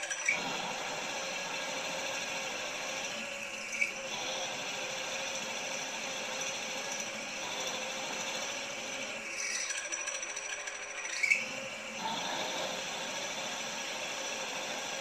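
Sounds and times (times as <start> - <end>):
milling machine drill whirring: 0.0 - 15.0
short sharp squeak: 11.0 - 11.5.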